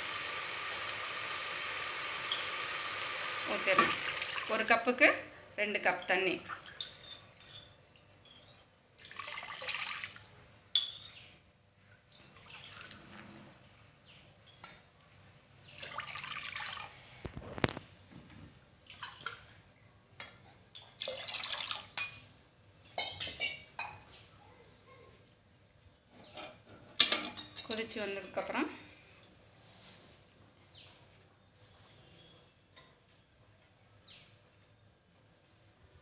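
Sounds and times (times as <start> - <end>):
water splashing into a pot: 0.0 - 4.6, 9.0 - 10.9, 15.8 - 17.0, 18.8 - 19.6, 20.7 - 22.2.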